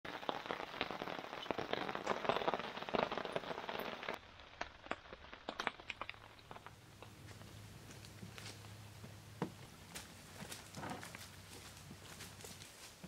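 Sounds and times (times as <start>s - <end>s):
rain pattering densely: 0.0s - 8.8s
scattered ticks and pops: 0.1s - 8.8s.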